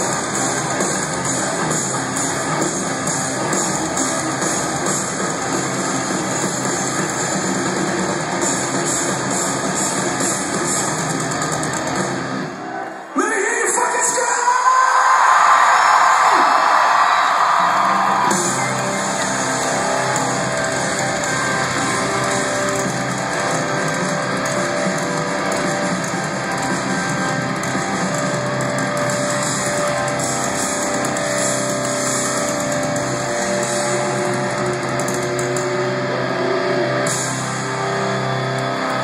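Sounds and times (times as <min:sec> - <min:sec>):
live rock band playing: 0:00.0 - 0:12.6, 0:17.5 - 0:39.0
crowd cheering: 0:11.4 - 0:39.0.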